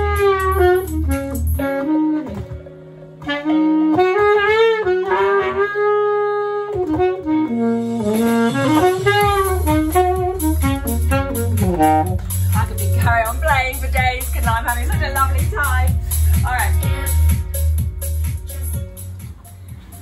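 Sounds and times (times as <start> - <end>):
saxophone melody: 0.0 - 13.5
backing track with bass line: 0.0 - 20.0.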